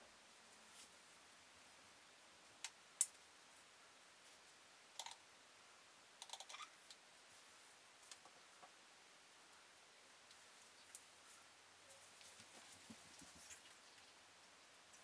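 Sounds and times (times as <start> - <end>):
faint sharp clicks: 2.6 - 3.2.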